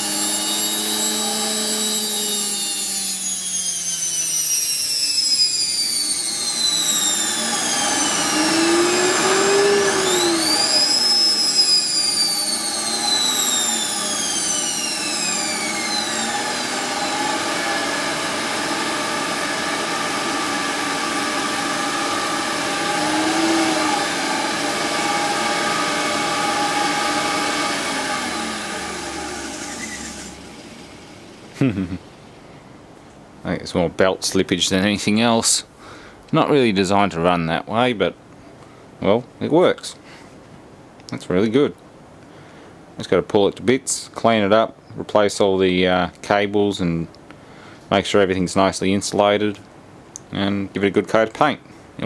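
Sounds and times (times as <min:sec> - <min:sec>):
electric motor whining: 0:00.0 - 0:31.9.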